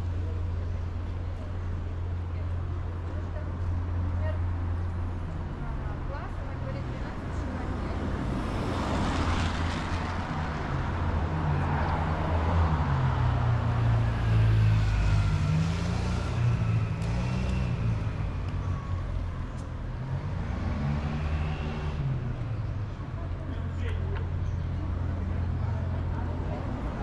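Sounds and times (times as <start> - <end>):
vehicles passing: 0.0 - 27.0.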